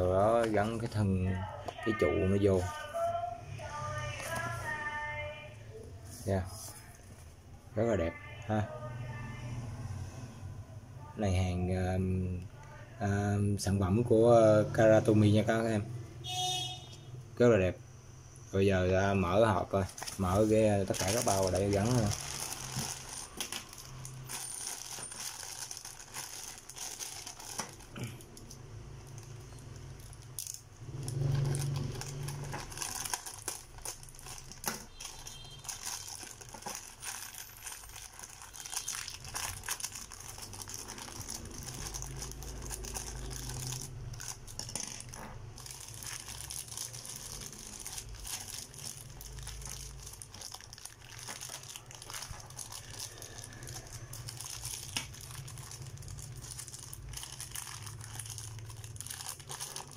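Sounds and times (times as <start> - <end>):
plastic bags crinkling: 0.0 - 3.1, 19.0 - 59.9.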